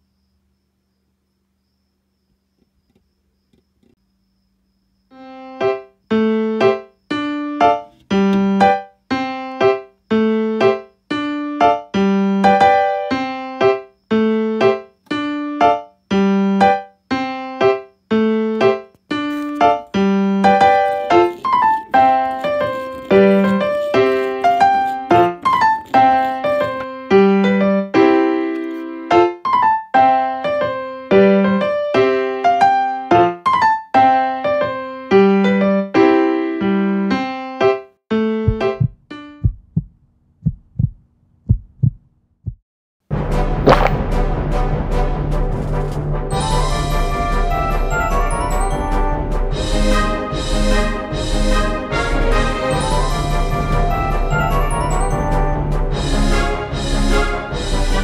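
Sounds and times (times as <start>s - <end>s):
keyboard piano melody: 5.2s - 39.8s.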